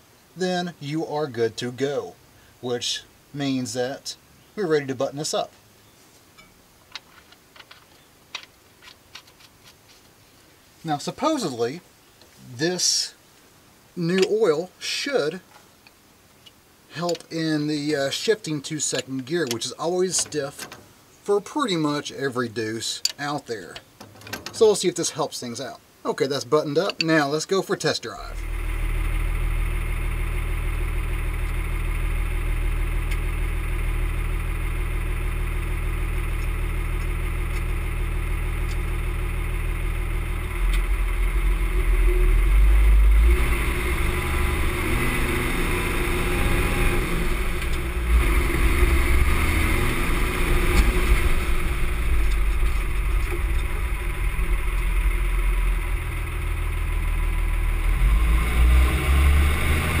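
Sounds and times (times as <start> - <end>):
diesel truck engine: 28.2 - 60.0.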